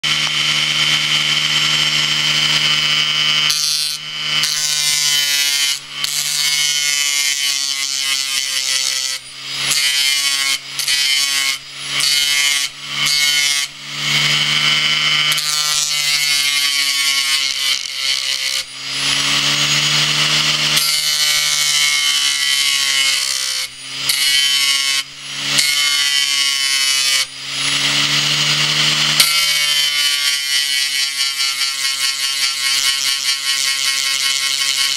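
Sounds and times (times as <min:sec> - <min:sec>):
hard drive motor whine: 0:00.0 - 0:04.4.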